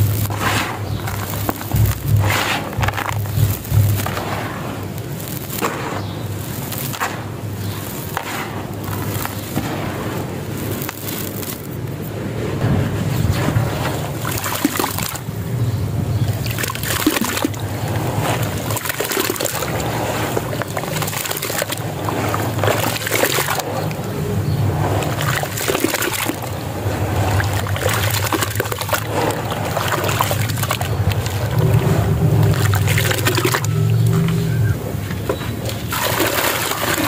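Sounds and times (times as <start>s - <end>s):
wet sand crackling: 0.0s - 37.0s
water sloshing and splashing: 12.8s - 15.5s, 16.1s - 34.4s, 35.2s - 37.0s.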